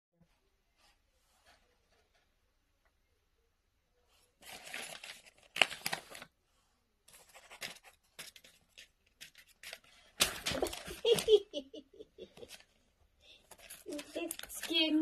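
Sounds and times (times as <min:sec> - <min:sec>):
paper rustling and crinkling: 0:04.4 - 0:06.4, 0:07.0 - 0:11.6, 0:12.4 - 0:15.0
sharp paper crackle: 0:04.4 - 0:06.4, 0:07.1 - 0:11.5, 0:13.3 - 0:15.0.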